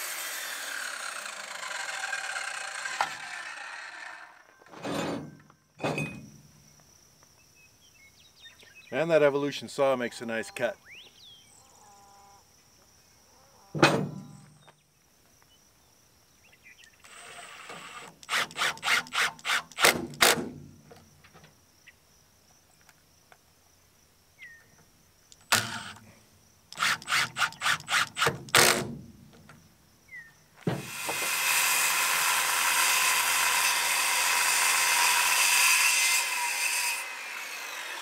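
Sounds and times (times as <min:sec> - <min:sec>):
cordless drill driving screws: 0:00.0 - 0:04.4, 0:17.0 - 0:20.4, 0:25.4 - 0:26.0, 0:26.8 - 0:28.9, 0:30.7 - 0:38.0.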